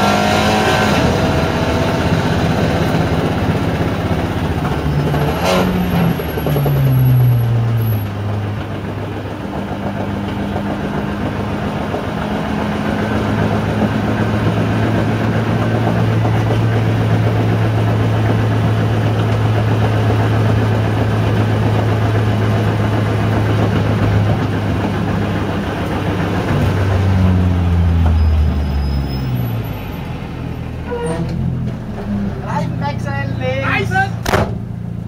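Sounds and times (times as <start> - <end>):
race car engine droning: 0.0 - 35.0.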